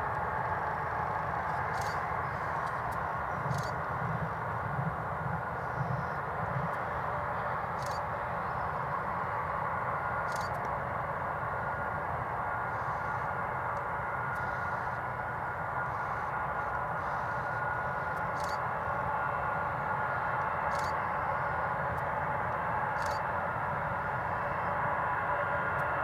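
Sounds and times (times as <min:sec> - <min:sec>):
jet engines running: 0:00.0 - 0:26.0.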